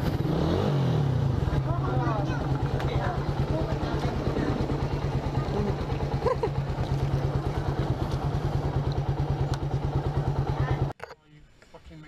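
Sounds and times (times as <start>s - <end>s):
motorcycle engine idling: 1.0s - 11.0s
child's voice: 1.7s - 3.2s.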